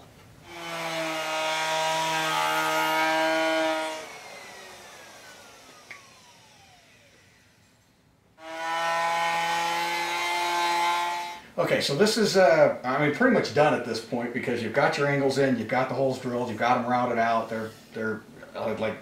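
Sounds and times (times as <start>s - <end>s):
router running: 0.4s - 7.7s, 8.4s - 11.4s
router winding down whine: 0.4s - 7.8s, 8.4s - 11.4s.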